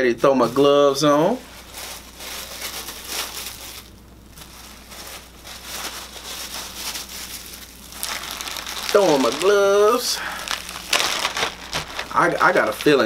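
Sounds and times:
plastic gloves crinkling: 0.2 - 13.0.

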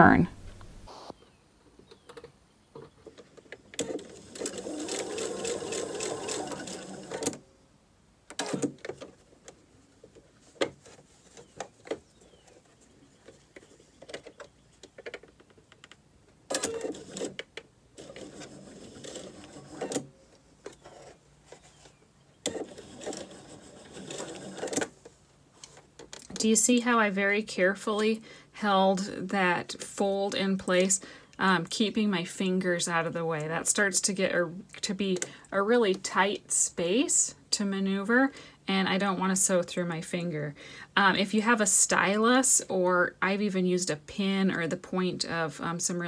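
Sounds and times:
sewing machine stitching: 3.8 - 7.4, 16.5 - 17.4, 18.0 - 20.1, 22.4 - 24.9.

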